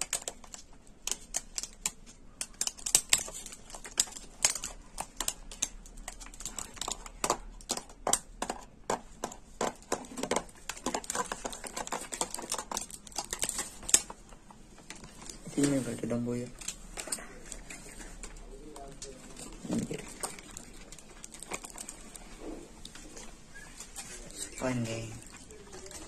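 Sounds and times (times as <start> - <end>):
plastic bag crackling: 9.5 - 26.0.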